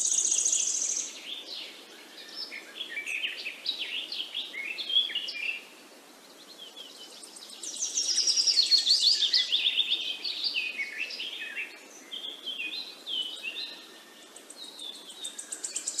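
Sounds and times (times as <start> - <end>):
birds chirping and singing: 0.0 - 16.0
soft steady hiss: 0.0 - 16.0.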